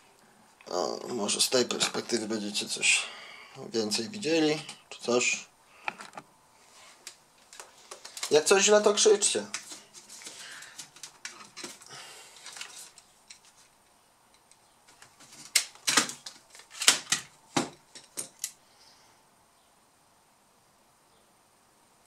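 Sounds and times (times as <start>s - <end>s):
plastic parts being handled: 5.8s - 6.2s, 6.9s - 13.7s, 14.4s - 18.6s.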